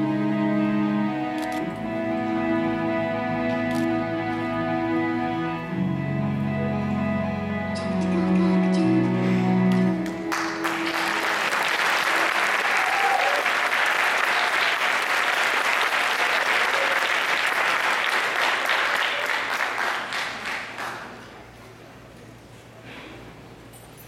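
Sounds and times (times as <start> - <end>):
audience applauding: 10.0 - 21.5.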